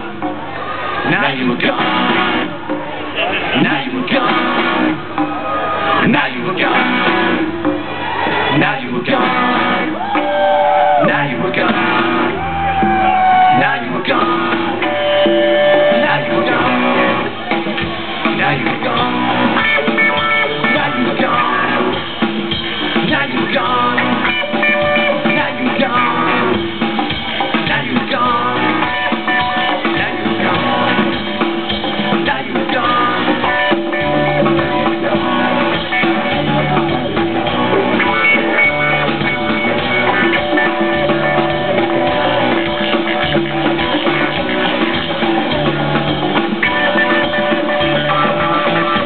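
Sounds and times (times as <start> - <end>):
live rock band playing: 0.0 - 49.0.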